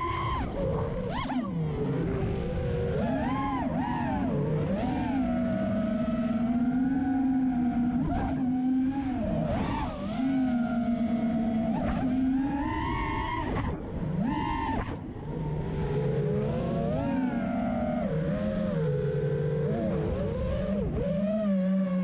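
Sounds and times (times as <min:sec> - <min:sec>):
drone motors whining: 0:00.0 - 0:22.0.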